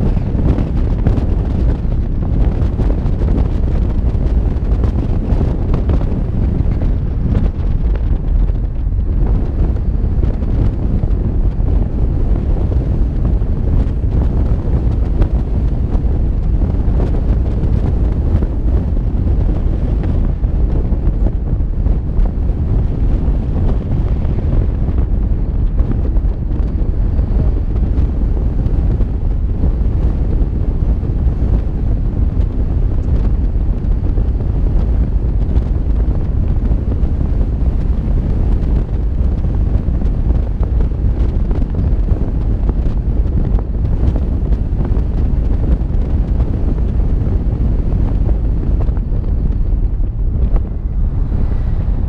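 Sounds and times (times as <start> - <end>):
wind buffeting microphone: 0.0 - 52.0.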